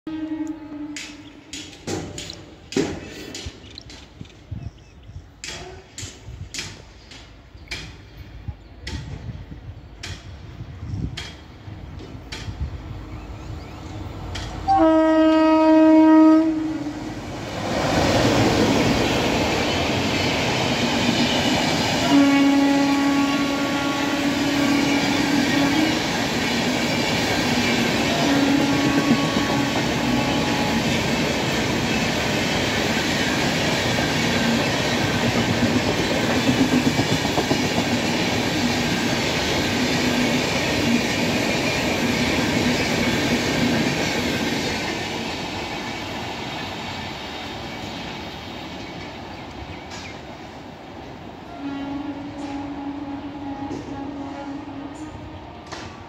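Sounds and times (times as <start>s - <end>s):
train horn blasts: 0.1s - 1.3s, 14.6s - 17.2s, 22.0s - 26.2s, 27.8s - 31.2s, 51.4s - 55.9s
clickety-clack over track joints: 0.9s - 4.5s, 5.4s - 12.7s, 13.8s - 14.7s, 25.1s - 30.2s, 30.8s - 45.5s, 53.6s - 56.0s
wheels rumbling on rails: 16.6s - 50.5s.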